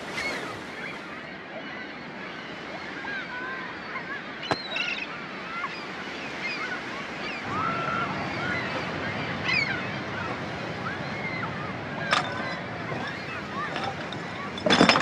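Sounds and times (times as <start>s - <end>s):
surf washing: 0.0s - 15.0s
gull cries: 3.0s - 14.6s.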